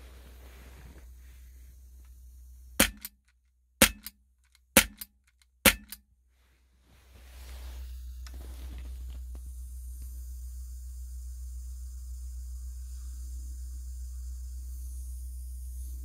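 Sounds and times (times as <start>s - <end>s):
air pistol shots: 2.8s - 3.2s, 3.8s - 4.1s, 4.8s - 5.1s, 5.7s - 6.0s.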